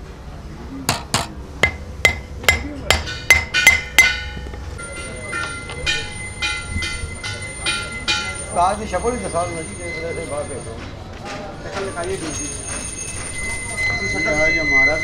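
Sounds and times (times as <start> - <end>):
hammer striking metal disc: 0.9 - 4.6.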